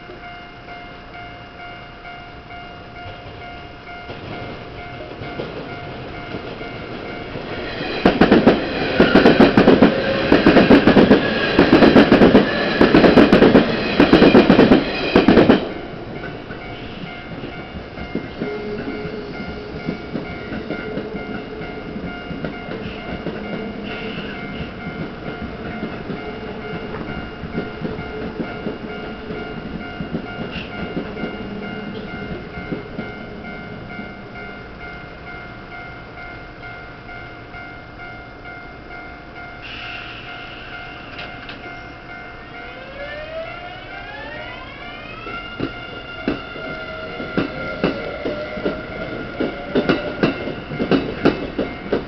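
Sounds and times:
level-crossing warning bells: 0.0 - 52.0
train wheels clattering: 3.0 - 34.1, 45.0 - 52.0.

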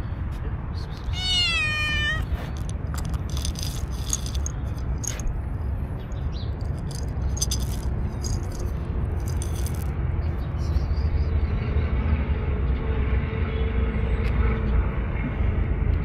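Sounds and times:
low background rumble: 0.0 - 11.8
kibble rattling in plastic cup: 2.1 - 5.2, 6.6 - 9.9.

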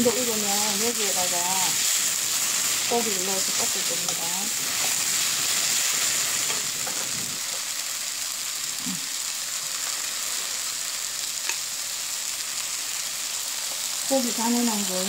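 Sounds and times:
vegetables sizzling in oil: 0.0 - 15.0.

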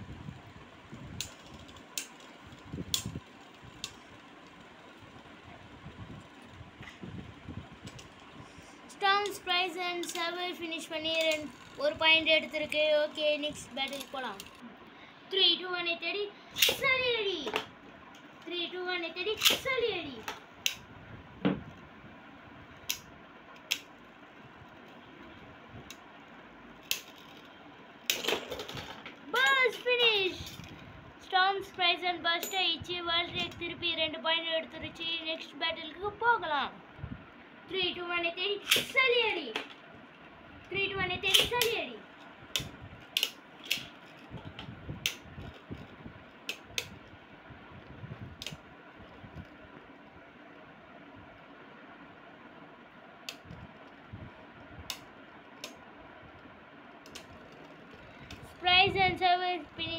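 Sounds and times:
spinning tops whirring: 0.1 - 14.7, 38.2 - 59.9
spinning tops clacking: 9.2 - 14.6.

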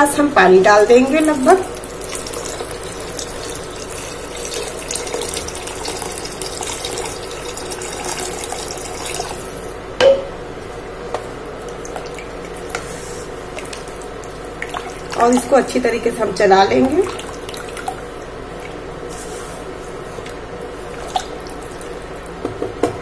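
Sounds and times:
water pouring and splashing: 1.2 - 9.6, 11.7 - 15.7, 16.7 - 22.3.

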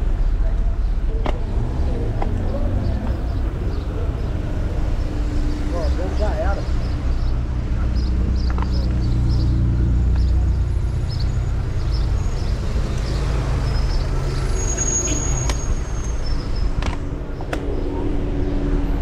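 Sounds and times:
vehicle engine rumble: 0.0 - 19.0.

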